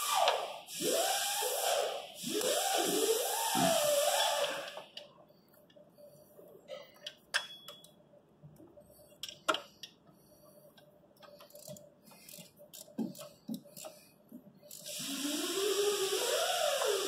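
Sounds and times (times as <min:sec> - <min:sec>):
ratchet ticking: 0:11.2 - 0:14.0.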